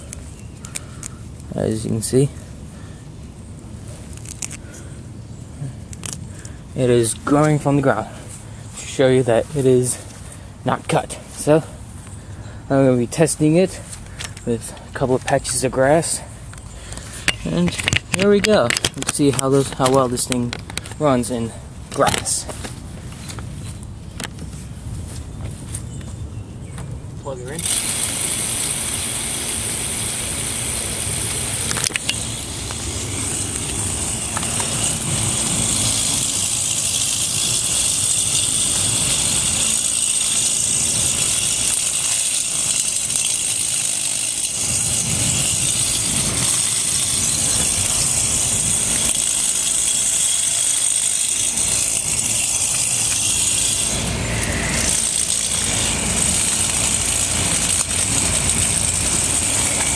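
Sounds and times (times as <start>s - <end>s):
toy lawn mower motor whine: 27.5s - 59.9s.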